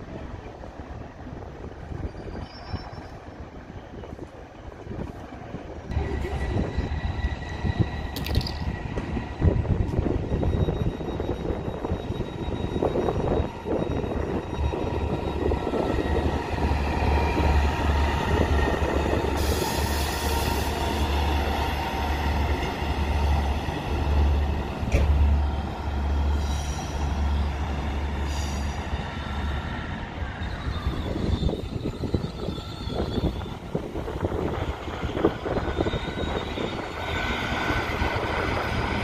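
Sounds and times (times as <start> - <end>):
diesel train engine drone: 0.0 - 39.0
high wheel squeals: 9.9 - 23.5, 26.2 - 39.0.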